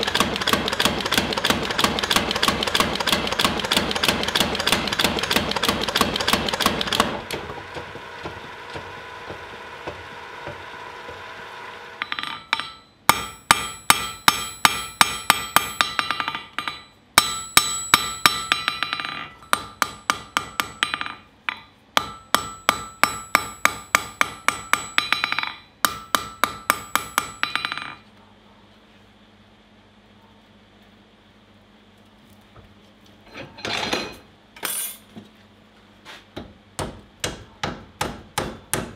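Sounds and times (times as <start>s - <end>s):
hammer ringing on anvil: 12.0s - 28.0s.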